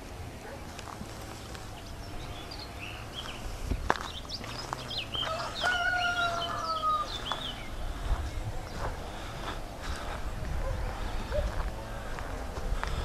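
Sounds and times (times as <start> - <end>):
songbirds chirping: 0.0 - 13.0
rooster crowing: 5.1 - 7.7.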